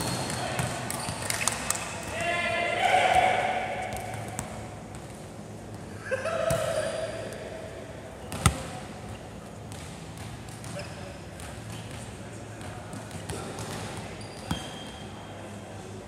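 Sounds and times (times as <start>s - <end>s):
players shouting: 2.0s - 4.3s
volleyball bouncing and struck: 8.3s - 8.8s.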